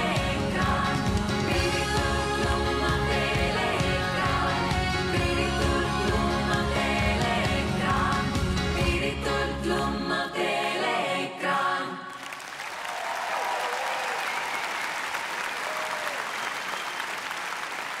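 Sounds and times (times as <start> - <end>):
audience applauding: 12.1 - 18.0.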